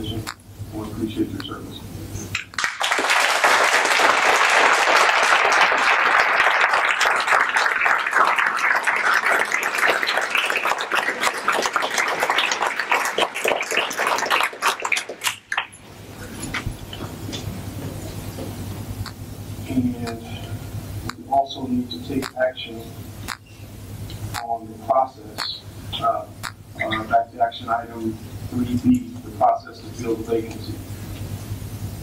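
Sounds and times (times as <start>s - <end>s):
audience clapping: 2.3s - 15.8s.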